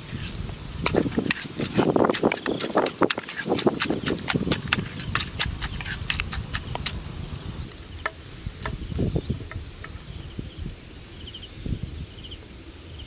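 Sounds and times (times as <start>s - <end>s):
pestle and spoon tapping mortar: 0.8s - 7.0s.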